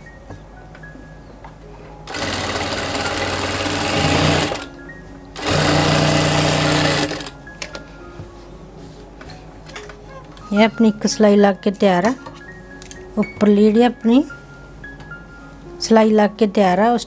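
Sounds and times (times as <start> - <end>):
sewing machine stitching: 2.1 - 4.7, 5.4 - 7.3.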